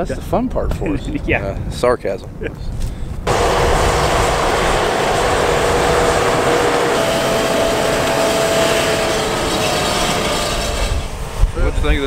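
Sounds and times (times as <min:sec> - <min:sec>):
tractor running: 0:03.3 - 0:12.0.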